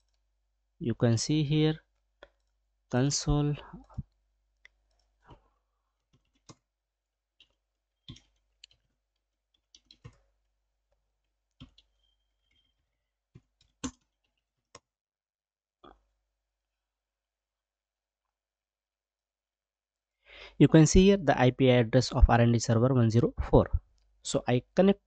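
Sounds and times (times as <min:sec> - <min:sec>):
keyboard keys clicking: 0:13.6 - 0:14.0.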